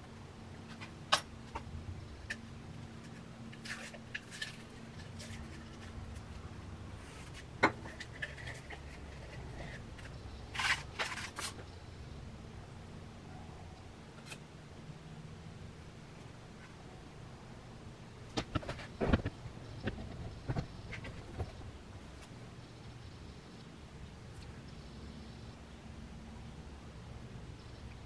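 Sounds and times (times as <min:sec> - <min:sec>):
faint steady hum: 0:00.0 - 0:28.0
tools scraping and tapping clay: 0:07.1 - 0:11.7.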